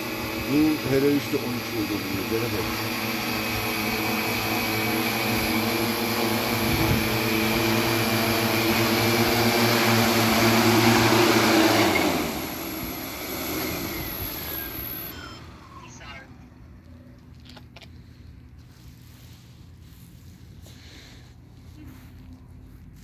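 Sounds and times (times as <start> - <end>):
rotors spinning down: 0.0 - 15.7
drone propellers whining: 0.0 - 16.1.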